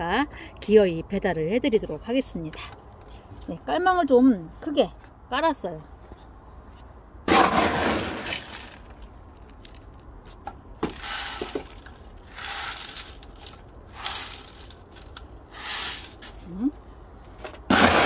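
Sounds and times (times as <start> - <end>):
gritty potting mix pouring: 7.3 - 8.9, 10.9 - 16.4, 17.7 - 18.0.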